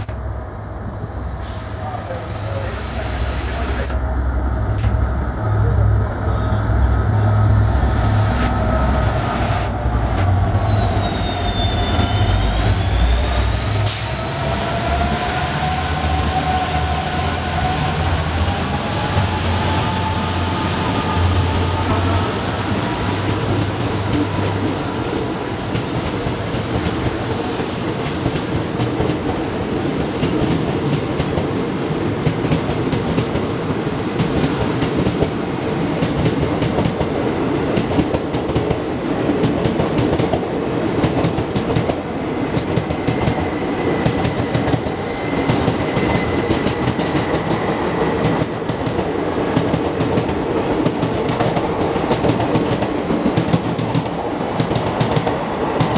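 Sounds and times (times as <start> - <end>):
diesel locomotive engine drone: 0.0 - 55.9
high steady wheel squeal: 0.9 - 26.6, 42.9 - 48.6.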